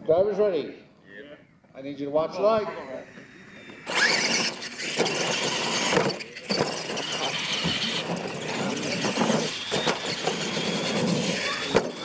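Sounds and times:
toy truck motors whining: 0:02.6 - 0:12.0.

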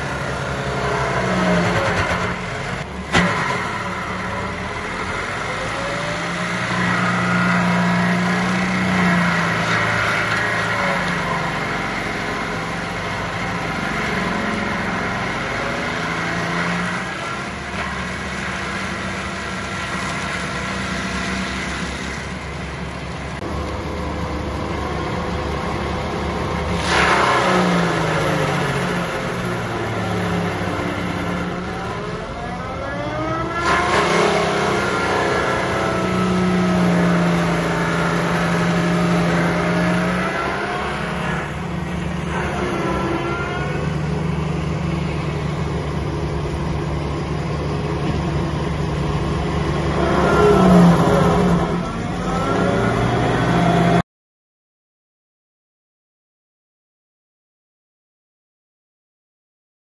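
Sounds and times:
mulcher rotor grinding soil: 0:00.0 - 0:54.0
tractor diesel engine: 0:00.0 - 0:54.0.

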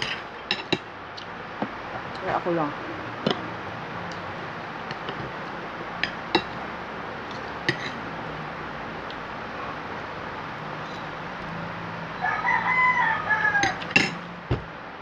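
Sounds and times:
cutlery clinking against a plate: 0:00.0 - 0:00.8, 0:06.0 - 0:06.6, 0:07.3 - 0:08.0, 0:13.6 - 0:14.2.

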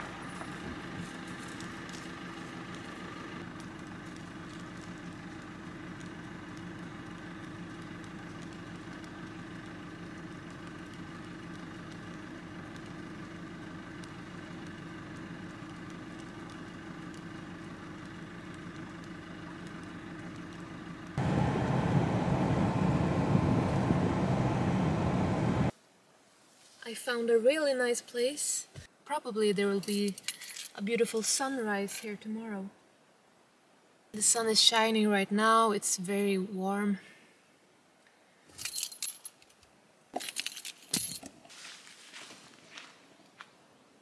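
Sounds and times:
vehicle engine and road noise: 0:00.0 - 0:25.8, 0:40.1 - 0:43.8.

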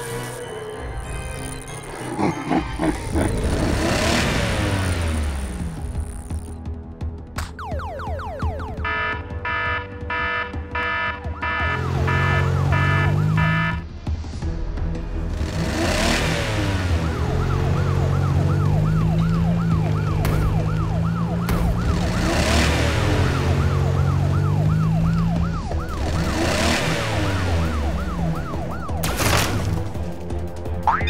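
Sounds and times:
cartoon police siren wailing: 0:07.6 - 0:13.8, 0:16.9 - 0:29.0.

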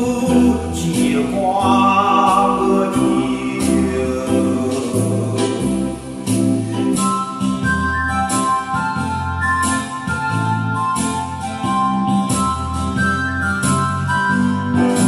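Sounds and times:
person singing: 0:00.0 - 0:07.0
electronic organ with bass and beat: 0:00.0 - 0:15.0.

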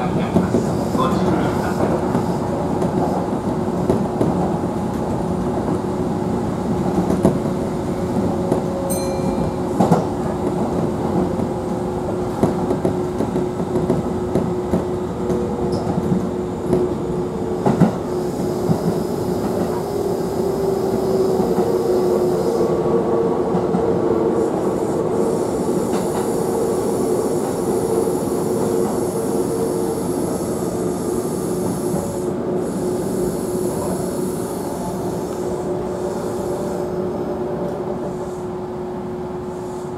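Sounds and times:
train wheels rumbling on rail: 0:00.0 - 0:39.9
rail joint clacks: 0:08.5 - 0:11.5
faint high ringing tones: 0:08.9 - 0:09.8.

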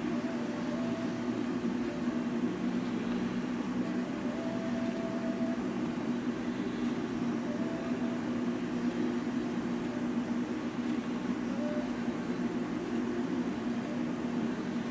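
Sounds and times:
low mechanical hum: 0:00.0 - 0:14.9
faint high tone: 0:11.4 - 0:12.4.

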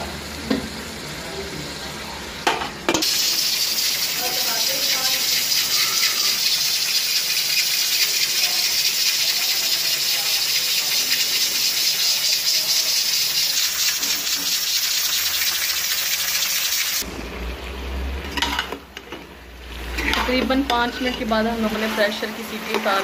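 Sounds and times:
pressure cooker hissing: 0:03.0 - 0:17.0, 0:20.0 - 0:23.0.

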